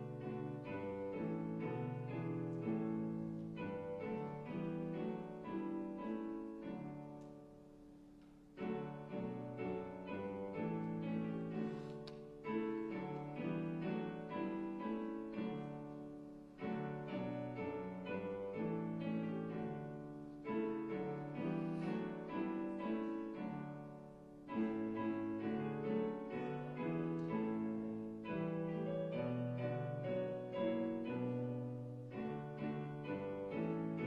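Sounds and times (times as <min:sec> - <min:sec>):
solo piano slow chords: 0:00.0 - 0:34.0.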